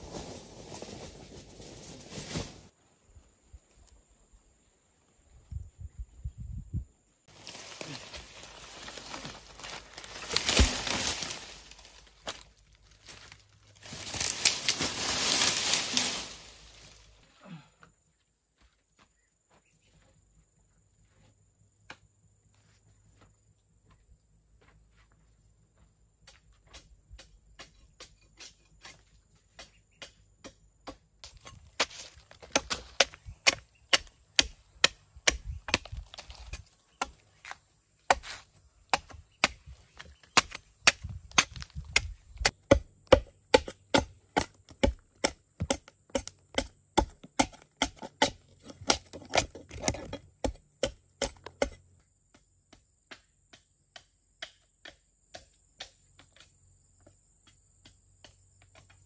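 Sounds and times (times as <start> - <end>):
machete chopping wood: 9.6 - 11.5, 26.7 - 37.2, 38.1 - 56.5.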